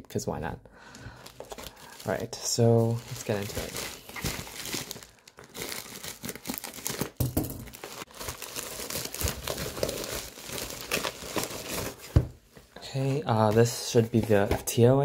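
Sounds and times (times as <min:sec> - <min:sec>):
plastic bag crinkling: 0:01.2 - 0:12.0.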